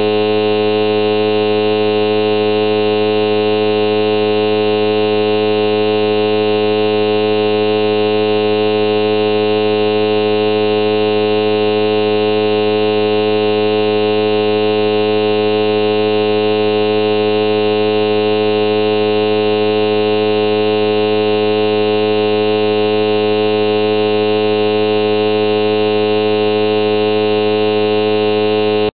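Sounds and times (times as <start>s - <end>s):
loud electronic buzz: 0.0s - 28.9s.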